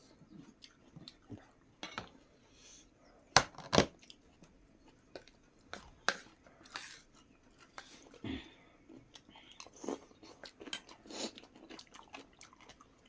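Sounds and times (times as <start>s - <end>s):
food crunching while chewed: 4.0s - 13.0s.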